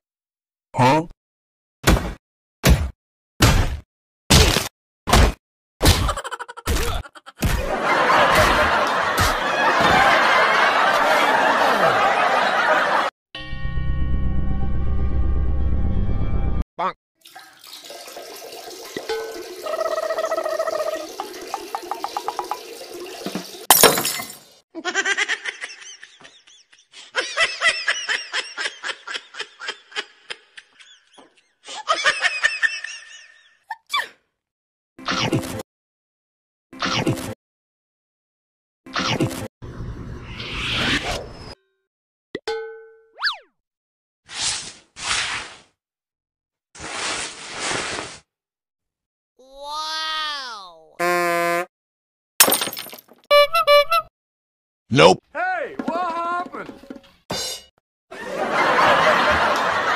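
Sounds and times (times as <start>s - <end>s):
high-pitched giggling: 6.0s - 7.4s, 19.6s - 21.1s
crowd laughter: 6.1s - 13.2s, 24.8s - 33.6s, 58.1s - 59.9s.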